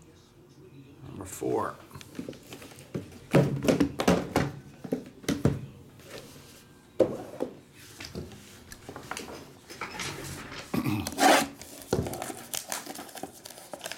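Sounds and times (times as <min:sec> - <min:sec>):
cardboard boxes knocking on table: 0:02.9 - 0:05.6.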